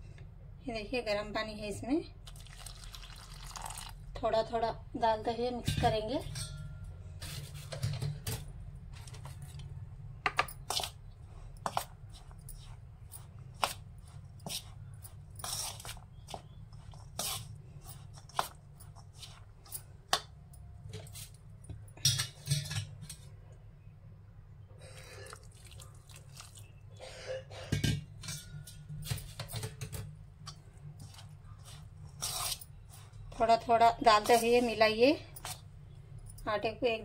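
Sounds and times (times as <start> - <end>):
spoon scraping metal bowl: 14.0 - 19.5.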